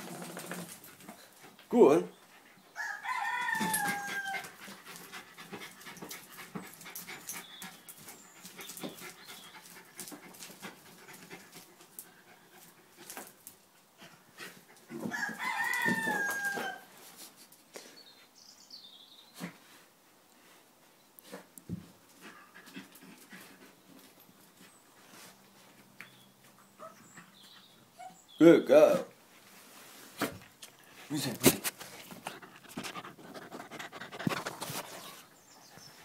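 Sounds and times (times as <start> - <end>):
dog sniffing and snuffling: 29.6 - 36.0.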